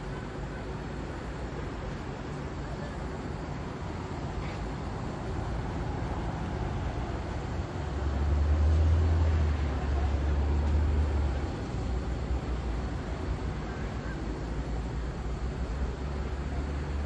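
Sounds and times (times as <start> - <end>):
city street traffic: 0.0 - 17.0
deep vehicle rumble: 1.8 - 17.0.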